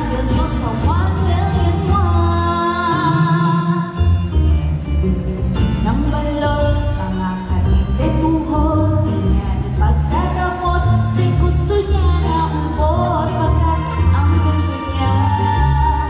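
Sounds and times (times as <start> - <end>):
woman singing into microphone: 0.0 - 4.2, 5.7 - 16.0
pop backing track: 0.0 - 16.0.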